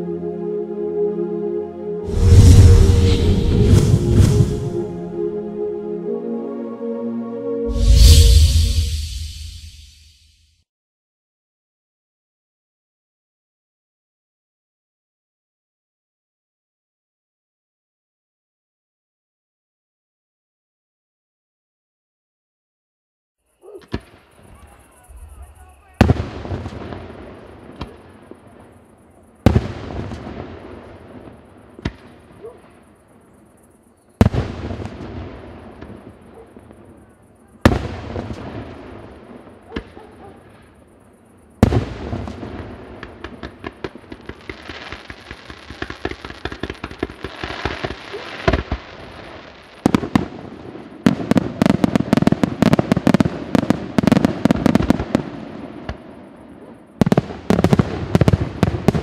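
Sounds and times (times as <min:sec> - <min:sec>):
firework crackling: 0:02.1 - 0:05.0, 0:07.7 - 0:10.1, 0:41.6 - 0:56.0.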